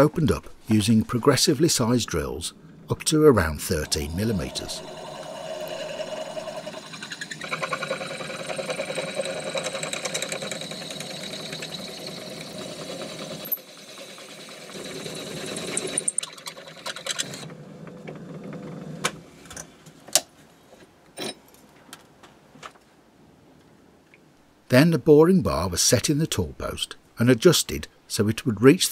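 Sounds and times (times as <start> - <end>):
lathe drilling into metal: 4.0 - 16.4.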